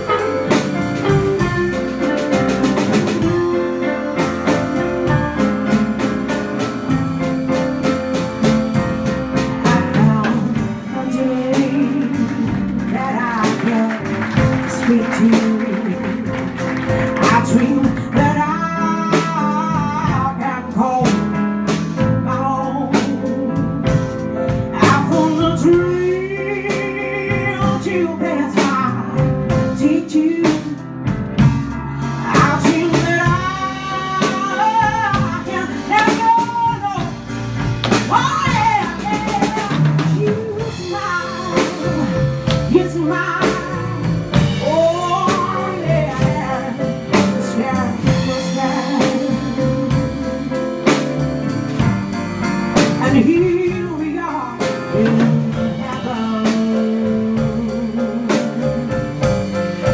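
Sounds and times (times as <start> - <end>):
drum kit: 0.0 - 59.9
upright bass: 0.0 - 59.9
woman singing with vibrato: 6.8 - 16.3, 17.1 - 21.2, 24.8 - 30.8, 32.2 - 37.3, 38.0 - 50.6, 53.0 - 59.4.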